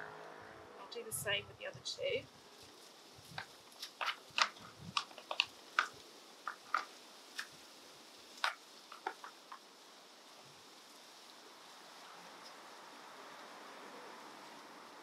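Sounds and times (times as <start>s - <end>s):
clicks of plastic plant pot handling: 3.3s - 7.5s, 8.4s - 9.6s.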